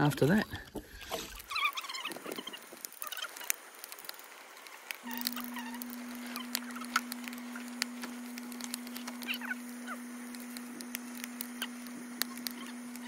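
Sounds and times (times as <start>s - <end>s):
steady low hum: 0.0s - 13.0s
sharp clicks: 1.4s - 13.0s
birds chirping: 5.0s - 13.0s.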